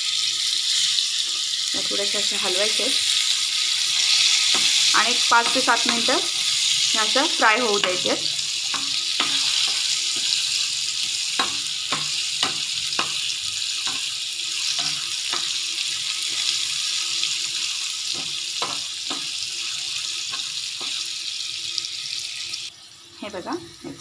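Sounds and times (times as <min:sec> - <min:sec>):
potato slices sizzling in oil: 0:00.0 - 0:24.0
spoon scraping a pan: 0:03.2 - 0:21.1.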